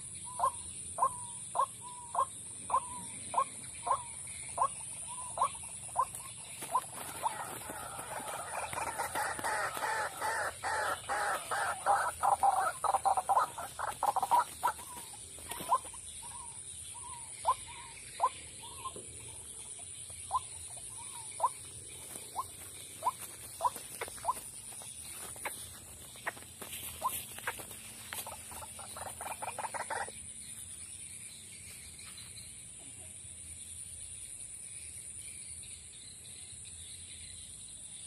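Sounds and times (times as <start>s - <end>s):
waterhens calling: 4.6s - 19.0s, 20.2s - 30.1s.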